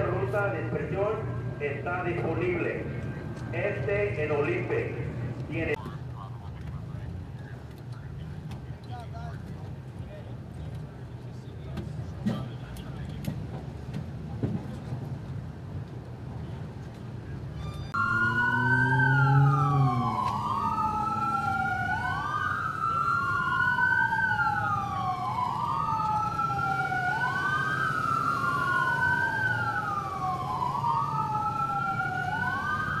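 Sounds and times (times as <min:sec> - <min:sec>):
police sirens wailing: 0:00.0 - 0:05.8, 0:17.4 - 0:33.0.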